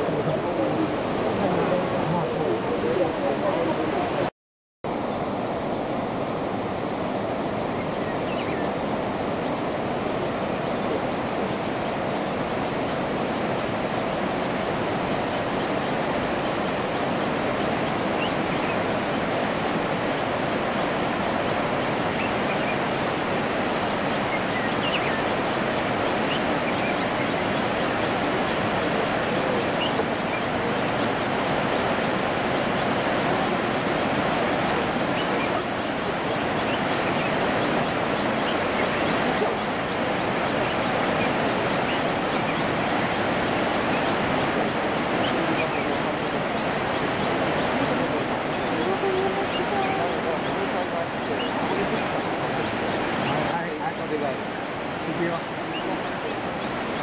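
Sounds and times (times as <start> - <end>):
waterfall rushing: 4.9 - 57.0.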